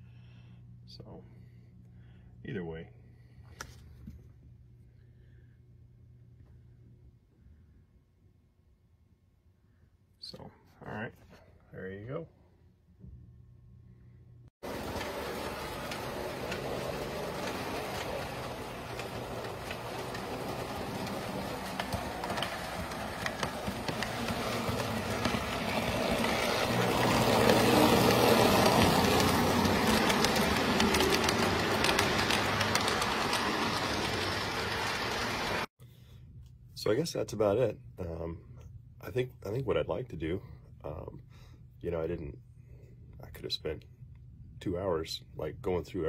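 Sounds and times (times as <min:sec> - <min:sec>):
model train wheels clicking on rails: 0:14.6 - 0:35.7.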